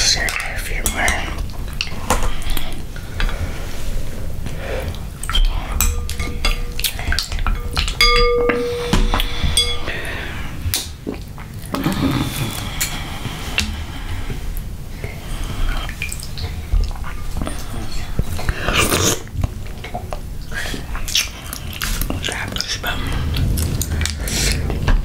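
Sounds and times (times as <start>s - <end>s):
utensils and shells clinking on glass: 5.3s - 10.4s
glass bowl ringing: 5.8s - 10.4s.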